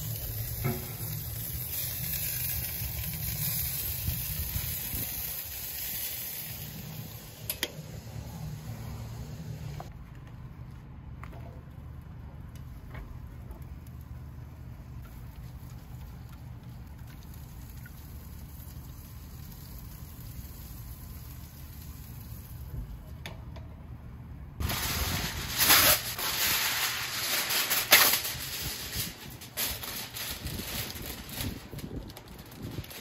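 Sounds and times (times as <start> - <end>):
aluminium foil crinkling: 0.0 - 7.1, 24.6 - 33.0
low steady hum: 6.4 - 25.6.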